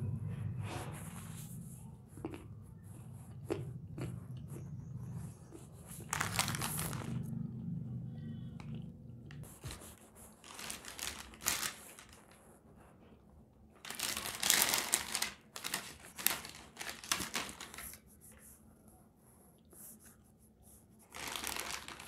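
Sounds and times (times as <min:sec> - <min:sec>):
hand rummaging in snack bag: 0:05.9 - 0:07.2, 0:10.4 - 0:12.3, 0:13.8 - 0:17.9, 0:21.1 - 0:22.0
foil snack bags crinkling: 0:06.0 - 0:07.2, 0:10.4 - 0:12.4, 0:13.8 - 0:17.9, 0:21.1 - 0:22.0.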